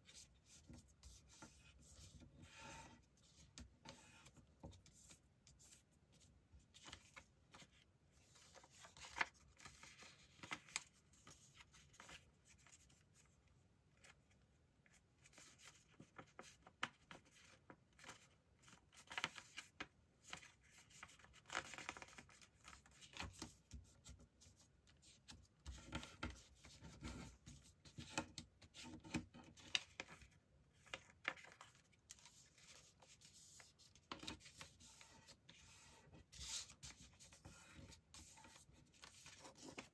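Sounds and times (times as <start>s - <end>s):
paper rustling and crinkling: 6.6s - 13.0s.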